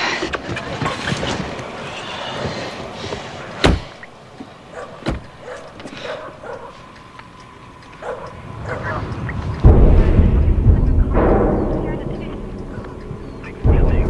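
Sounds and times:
steady background noise: 0.0s - 14.0s
sharp bangs: 9.5s - 14.0s.

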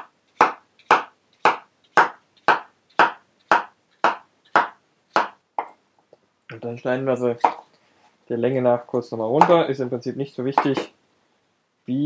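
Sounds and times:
knife chopping on wooden board: 0.0s - 5.8s, 7.4s - 7.6s.

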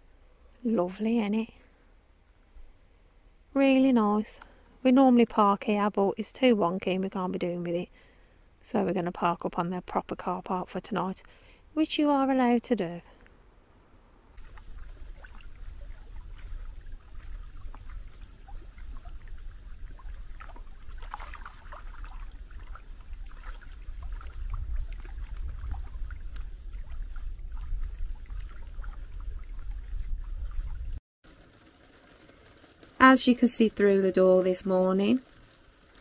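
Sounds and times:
small waves lapping on shore: 14.4s - 31.0s
wind rumble on microphone: 14.4s - 31.0s.

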